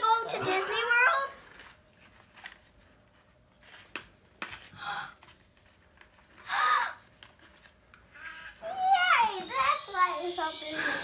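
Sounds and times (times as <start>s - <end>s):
paper packaging rustling: 1.4s - 6.4s
breathy sound: 10.6s - 11.0s.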